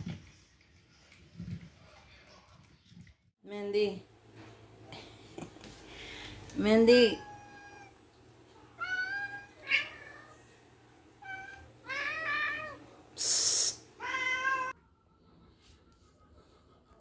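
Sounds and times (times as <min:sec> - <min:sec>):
cats meowing: 0:07.2 - 0:08.0, 0:08.7 - 0:10.5, 0:11.2 - 0:12.8, 0:14.0 - 0:14.8
high hissing noise: 0:13.2 - 0:13.9.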